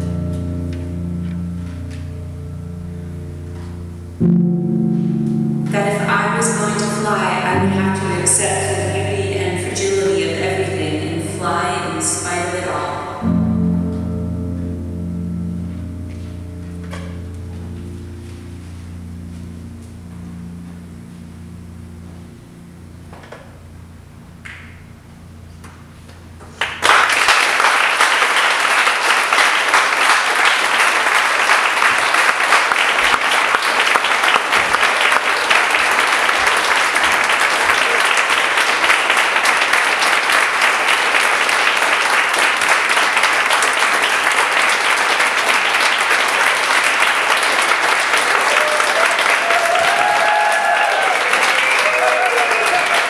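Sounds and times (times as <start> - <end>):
audience applause: 26.6 - 53.0.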